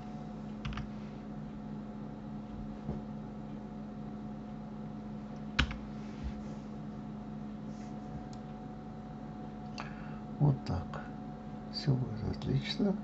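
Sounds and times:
steady low hum: 0.0s - 13.0s
keyboard and mouse clicks: 5.6s - 5.8s.

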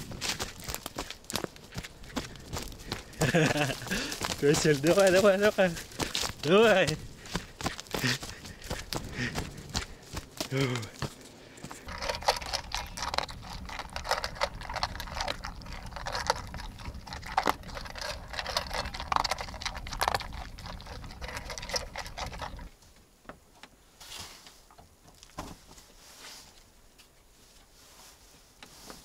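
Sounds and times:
footsteps crunching on forest floor: 0.0s - 11.9s
handling rumble: 0.0s - 22.8s
faint rustles: 25.4s - 29.0s.

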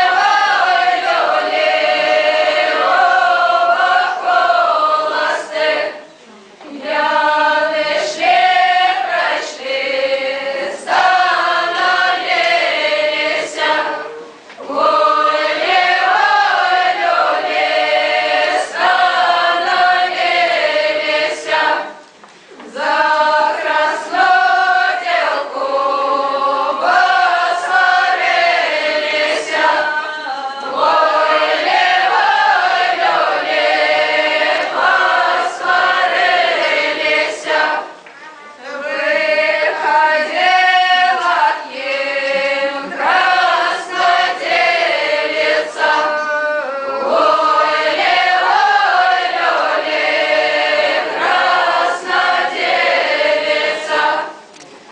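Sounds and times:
group singing in unison: 0.0s - 54.6s.

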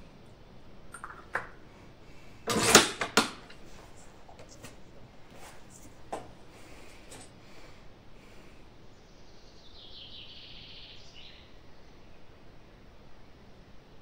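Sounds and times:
rifle bolt sliding rasp: 2.5s - 3.2s.

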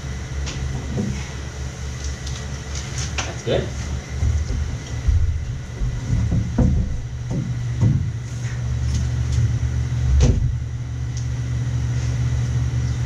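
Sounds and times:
heaters and fan droning: 0.0s - 13.0s
knocks on metal floor: 4.1s - 8.2s, 10.2s - 10.6s.

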